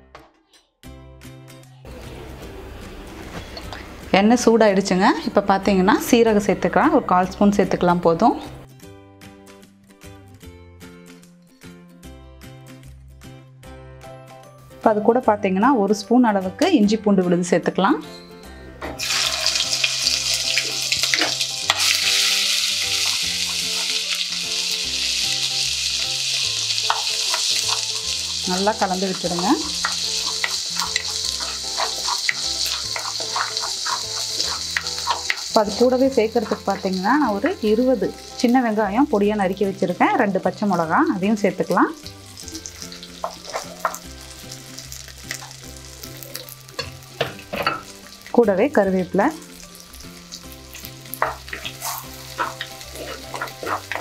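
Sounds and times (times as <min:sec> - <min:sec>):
soft background music: 0:00.0 - 0:54.0
paste sizzling in hot oil: 0:19.0 - 0:54.0.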